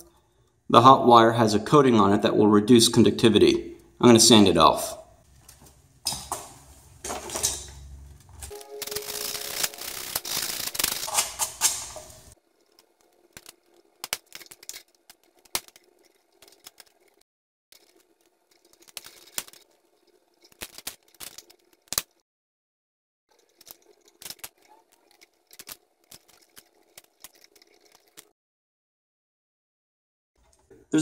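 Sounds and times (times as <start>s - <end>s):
sandpaper rasping on wire: 8.9s - 12.4s.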